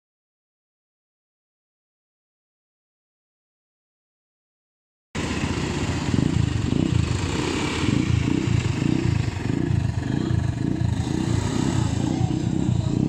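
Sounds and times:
quad bike engines running: 5.2 - 13.0.

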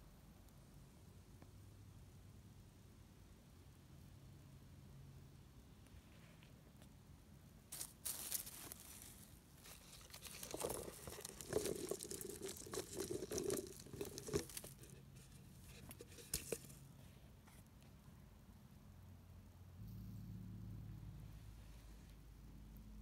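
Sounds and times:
mushrooms tumbling out: 7.7 - 16.8
plastic bottle crinkling: 7.8 - 16.8.

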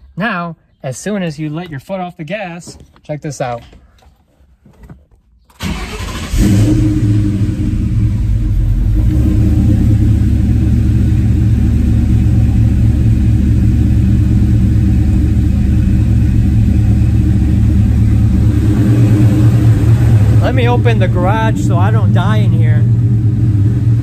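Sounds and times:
car engine starting and idling: 5.5 - 24.0.

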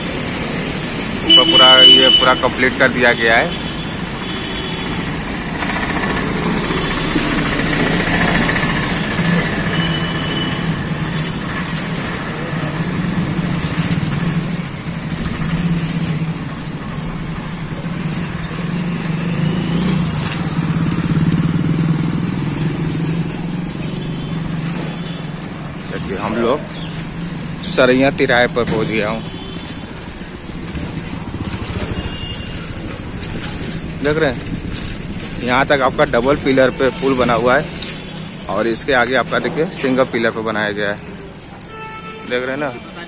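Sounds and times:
street noise: 0.0 - 43.0
motorcycle engine running: 4.2 - 39.6.

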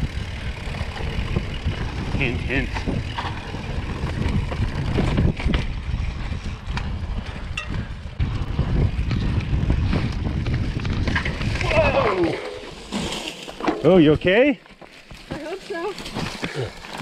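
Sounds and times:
wind buffeting the microphone: 0.0 - 12.7
bike clicks and knocks: 0.0 - 14.0
bike tyres rolling on dirt: 0.0 - 17.0.

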